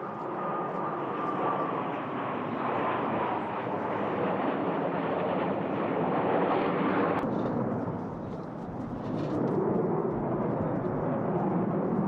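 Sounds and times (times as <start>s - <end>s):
jet fighter engines rumbling: 0.0s - 12.0s.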